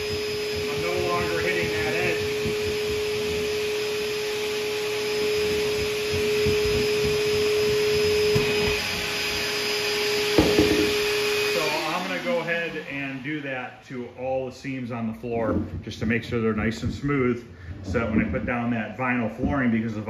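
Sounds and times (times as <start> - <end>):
vacuum running: 0.0 - 20.0
hammer head scraping on floor: 10.2 - 11.2, 15.5 - 19.8
sharp knock: 10.4 - 11.0.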